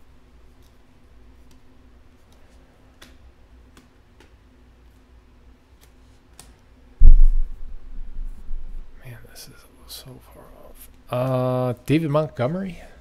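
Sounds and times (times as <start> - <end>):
low steady hum: 6.8 - 13.0.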